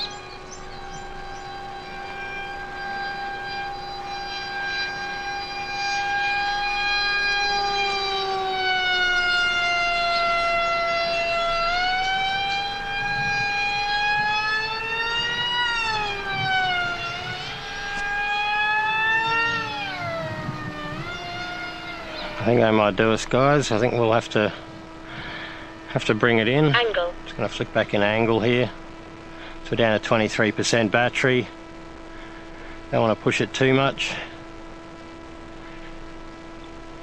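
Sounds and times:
electric motor and propeller whine: 0.0s - 26.8s.

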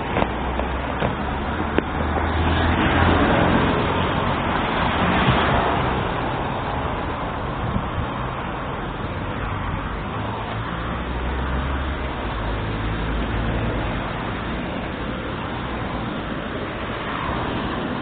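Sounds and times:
low traffic rumble: 0.0s - 18.0s
vehicle passing: 0.0s - 18.0s.

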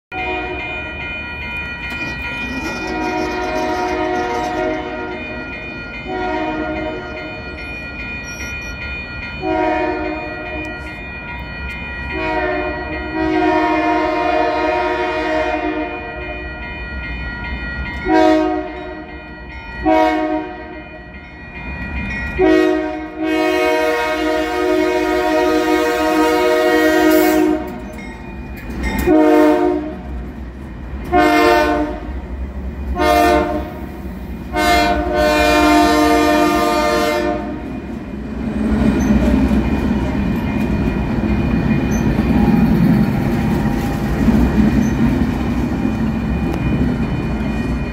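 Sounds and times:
locomotive air horn blasts: 0.1s - 0.9s, 2.6s - 5.4s, 6.0s - 7.3s, 9.4s - 10.8s, 12.1s - 16.4s, 18.0s - 19.1s, 19.8s - 20.8s, 22.4s - 27.8s, 29.0s - 30.1s, 31.1s - 32.1s, 32.9s - 33.9s, 34.5s - 37.7s
low train rumble: 0.1s - 47.9s.

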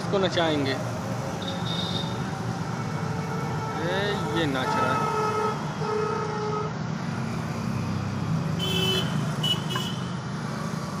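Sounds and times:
road traffic: 0.0s - 11.0s
vehicle horns honking: 1.4s - 2.2s, 3.2s - 6.8s, 8.6s - 10.2s.

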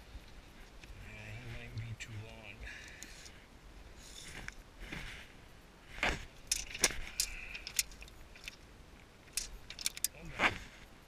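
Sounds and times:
tape measure clicking and rattling: 6.4s - 8.6s, 9.3s - 10.2s.

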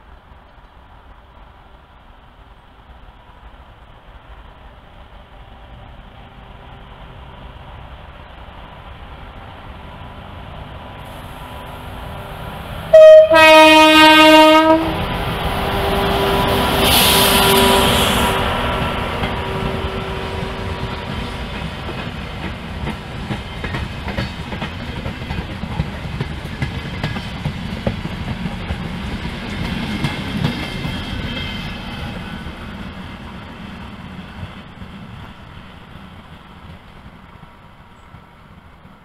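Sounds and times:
train wheels rumbling and clacking: 0.0s - 39.0s
train horn blast: 12.9s - 15.1s, 15.7s - 18.6s.

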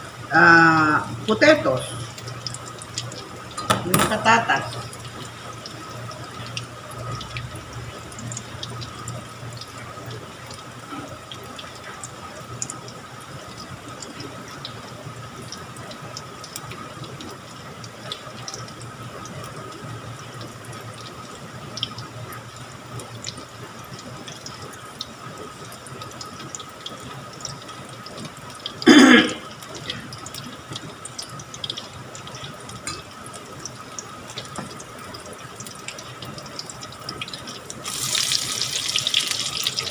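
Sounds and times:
fritters sizzling in oil: 0.2s - 12.0s, 37.4s - 39.9s.

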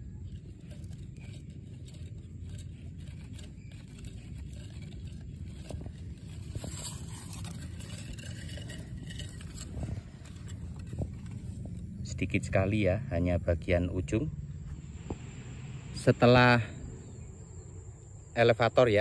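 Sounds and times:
fingers scraping and rustling: 0.0s - 12.0s
steady low rumble: 0.0s - 19.0s.

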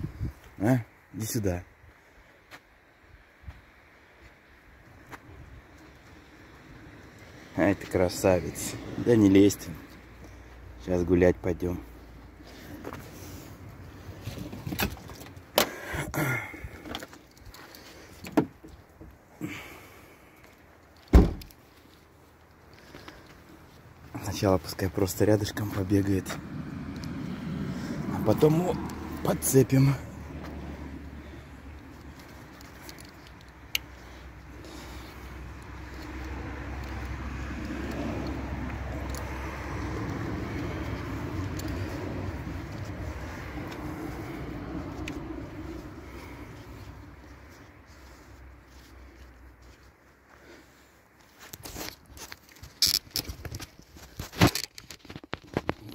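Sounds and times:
car door shutting with thump: 21.1s - 21.5s.

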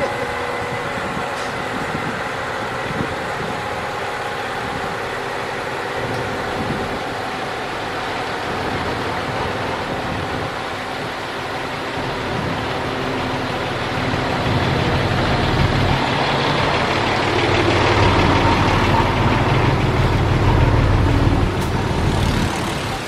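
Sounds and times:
diesel truck engine running: 0.0s - 23.0s.

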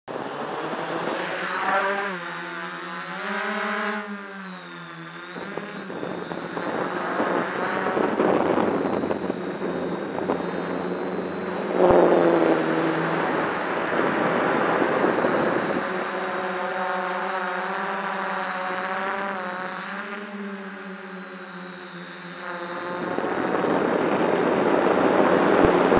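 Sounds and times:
drone motors humming: 0.1s - 25.9s
rushing noise: 6.6s - 16.8s.

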